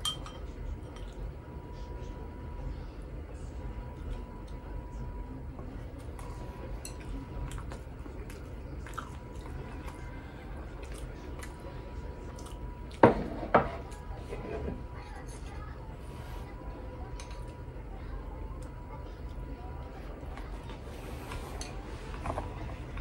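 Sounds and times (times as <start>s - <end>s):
person chewing food: 6.0s - 13.0s
dishes knocking: 13.0s - 13.8s.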